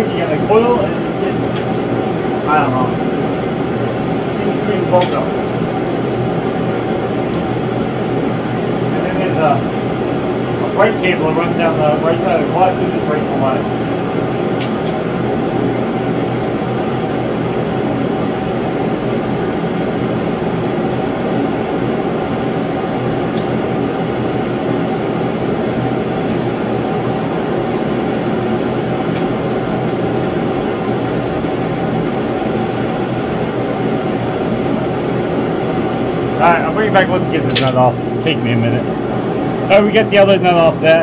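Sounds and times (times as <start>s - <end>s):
heater rushing noise: 0.0s - 30.9s.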